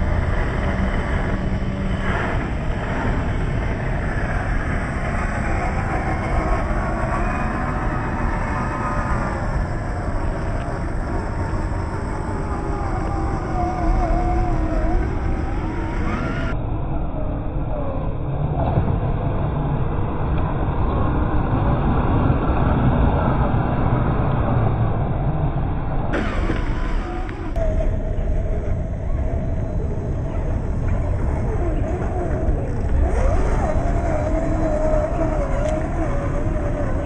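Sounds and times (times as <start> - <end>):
electric motor and gears whining: 0.0 - 16.6, 26.2 - 37.0
steady low rumble: 0.0 - 37.0.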